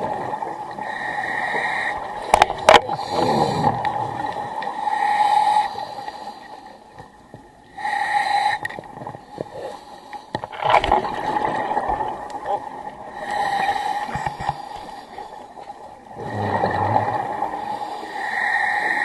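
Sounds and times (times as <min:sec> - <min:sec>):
regulator hissing inhalations: 0:17.6 - 0:19.0.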